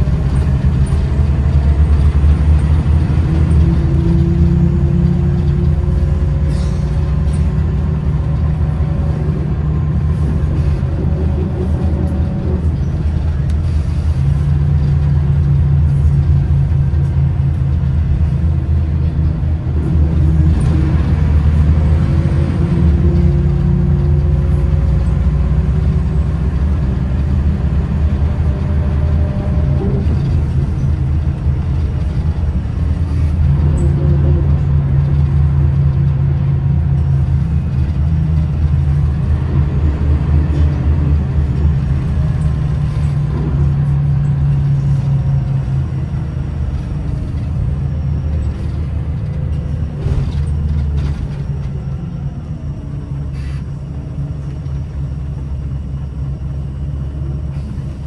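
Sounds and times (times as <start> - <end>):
bus engine droning: 0.0 - 58.0.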